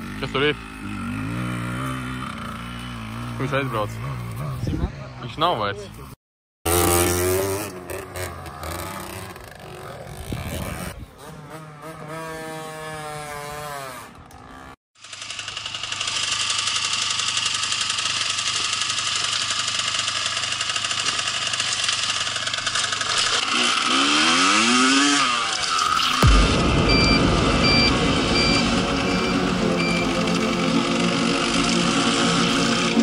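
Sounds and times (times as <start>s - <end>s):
motorcycle engine revving: 0.0s - 5.2s, 6.7s - 33.0s
wind noise on microphone: 10.2s - 11.2s.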